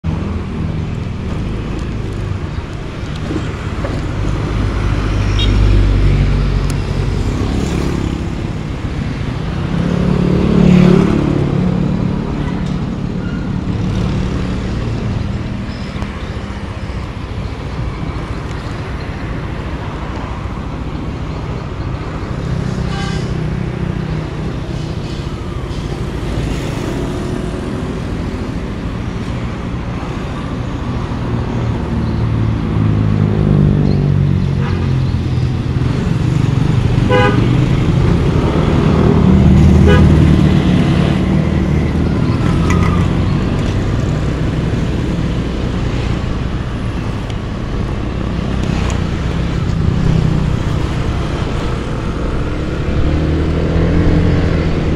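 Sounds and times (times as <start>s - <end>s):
road traffic passing: 0.0s - 54.9s.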